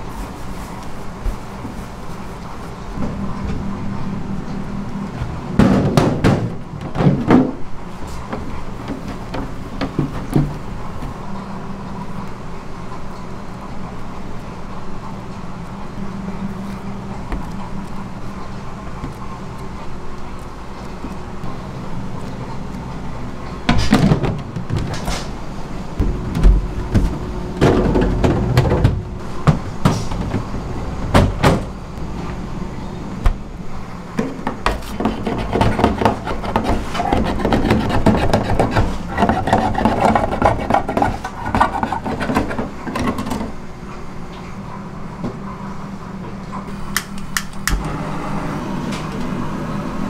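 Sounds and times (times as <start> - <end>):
kitchen equipment humming: 0.0 - 50.0
tubs knocking and clattering: 26.0 - 31.7.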